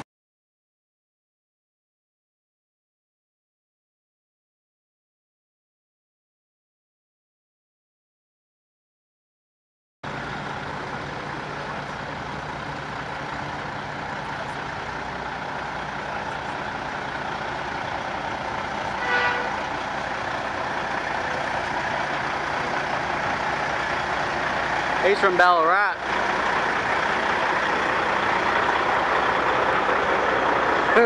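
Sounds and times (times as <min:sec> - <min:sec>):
truck diesel engine: 0:10.0 - 0:31.0.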